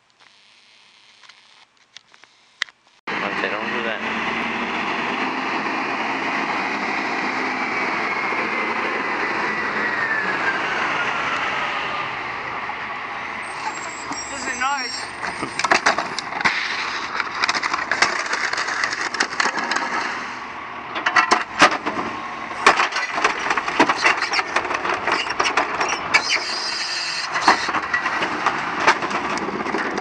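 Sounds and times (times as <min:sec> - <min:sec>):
junk crashing into garbage truck: 0:15.3 - 0:20.3, 0:21.0 - 0:26.2, 0:27.4 - 0:30.0.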